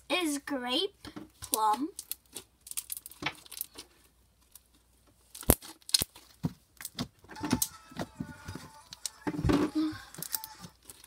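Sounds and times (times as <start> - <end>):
slime clicking and popping: 5.4 - 6.2.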